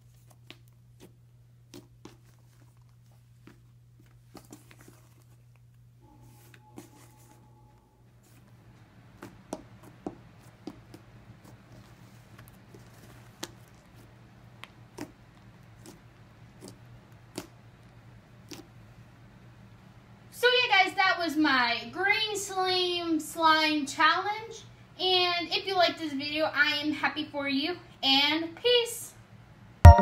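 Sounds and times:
low steady hum: 0.0s - 12.4s.

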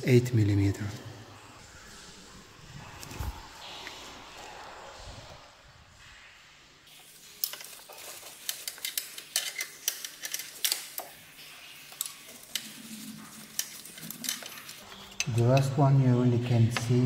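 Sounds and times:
wrench clicking on bolts: 8.4s - 11.1s.

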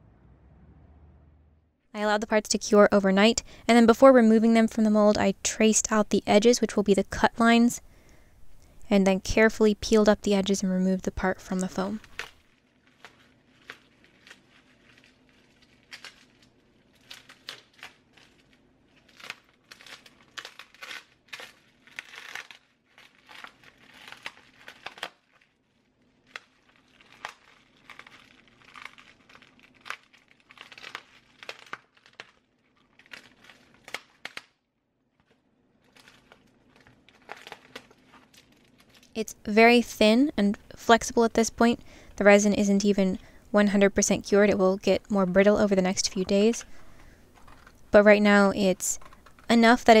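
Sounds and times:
plastic sheeting crinkling: 11.8s - 34.5s, 35.2s - 39.2s.

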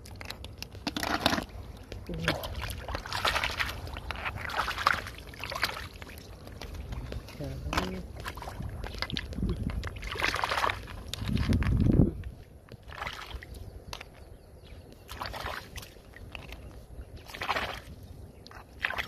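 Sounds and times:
hands splashing in muddy water: 2.2s - 11.8s, 12.8s - 13.5s, 15.0s - 19.0s.

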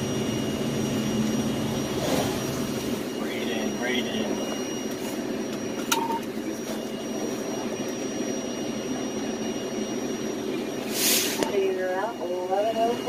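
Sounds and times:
truck engine running: 0.0s - 13.0s
short beep: 3.1s - 7.4s.

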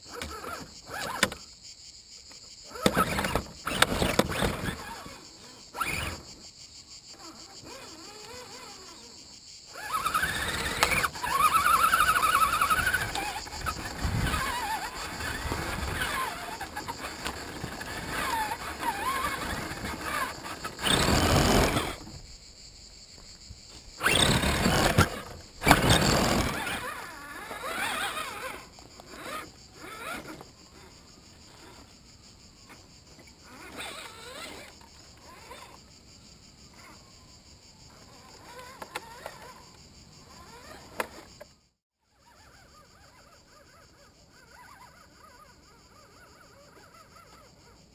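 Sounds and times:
electric motor and gears whining: 0.0s - 1.5s, 2.6s - 22.4s, 23.4s - 35.9s, 37.9s - 41.5s
high insect buzz: 0.0s - 47.9s.

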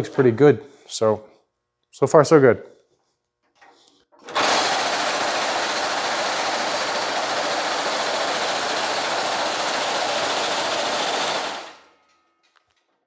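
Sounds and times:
reciprocating hammer pounding metal mesh: 4.7s - 12.1s.

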